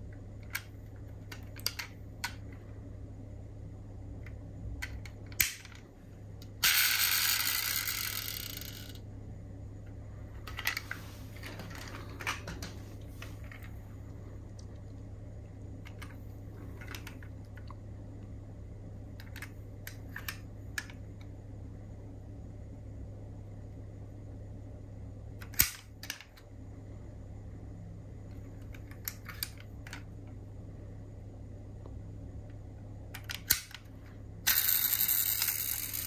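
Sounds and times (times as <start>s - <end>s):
small clicks of toy car parts: 0.4s - 2.4s, 4.2s - 5.8s, 16.8s - 17.8s, 19.2s - 21.3s, 25.4s - 26.5s, 28.6s - 30.1s, 33.1s - 33.9s, 34.5s - 36.0s
toy car sharp click: 25.4s - 26.3s, 34.5s - 36.0s.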